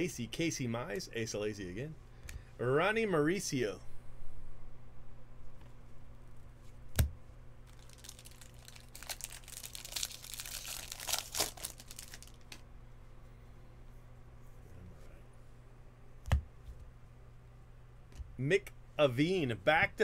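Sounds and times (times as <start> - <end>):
wrapper tearing and crinkling: 7.6 - 12.6.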